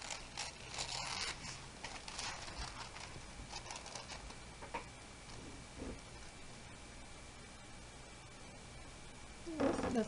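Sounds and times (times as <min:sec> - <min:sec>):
tissue paper rustling: 0:00.0 - 0:04.4.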